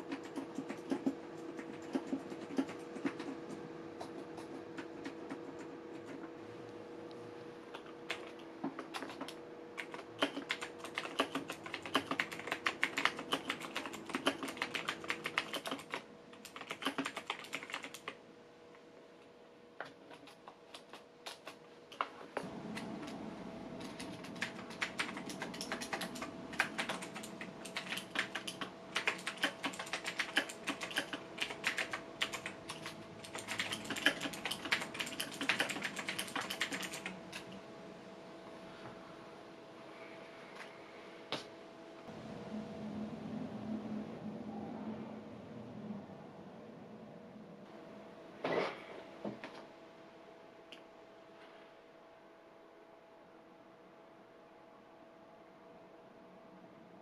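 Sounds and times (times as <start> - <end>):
typing on computer keyboard: 0.0 - 6.3, 7.7 - 18.2, 19.8 - 23.2, 23.8 - 37.6.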